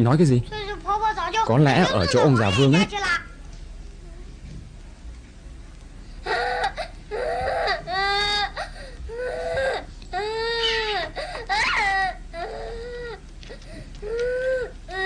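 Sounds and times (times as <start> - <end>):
girl crying and wailing: 6.2 - 13.2, 14.0 - 15.0.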